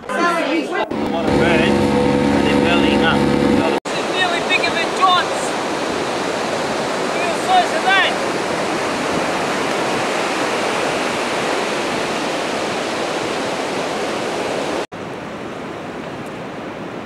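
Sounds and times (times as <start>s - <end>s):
surf breaking on a beach: 3.8s - 17.0s.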